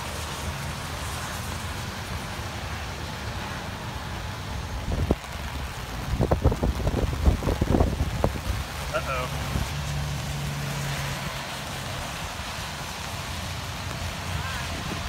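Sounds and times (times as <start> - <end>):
wind buffeting microphone: 4.6 - 9.8, 14.2 - 15.0.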